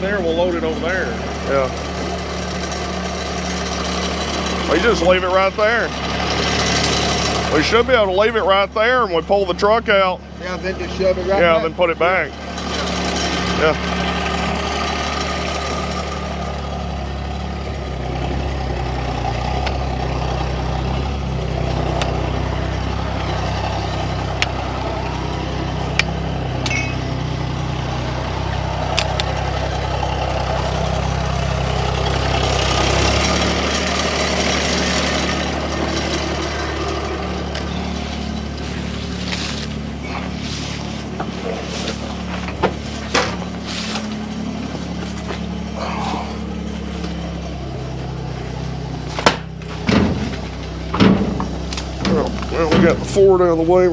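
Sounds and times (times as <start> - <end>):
tractor engine running: 0.0 - 53.9
sharp clicks and knocks: 49.2 - 53.1.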